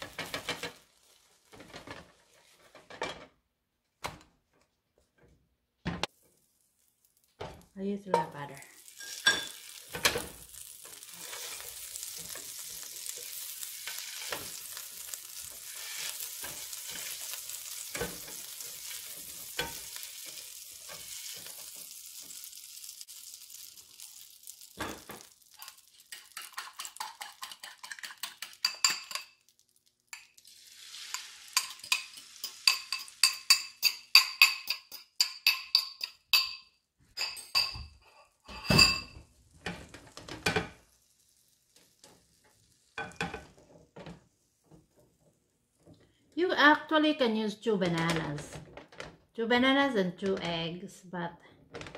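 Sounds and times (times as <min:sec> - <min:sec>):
butter sizzling in a frying pan: 0:00.0 - 0:02.9, 0:06.1 - 0:36.1, 0:37.2 - 0:46.2
utensil clinking against a bowl: 0:25.6 - 0:29.4, 0:31.1 - 0:39.2.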